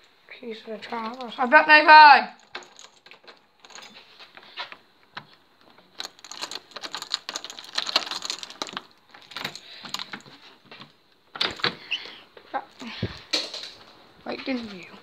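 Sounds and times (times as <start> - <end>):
keys rattling and clicking: 0.9 - 1.5, 2.4 - 4.4, 5.2 - 13.9.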